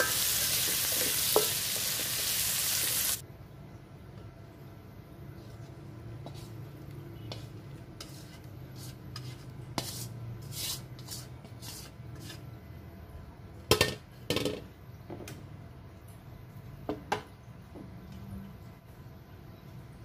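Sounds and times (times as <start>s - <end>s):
spatula scraping a metal wok: 7.2s - 12.5s.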